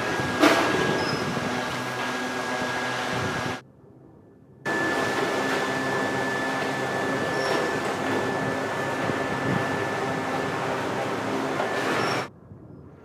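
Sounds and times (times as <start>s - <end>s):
factory machinery noise: 0.0s - 3.6s, 4.7s - 12.3s
high-pitched whine: 0.0s - 13.0s.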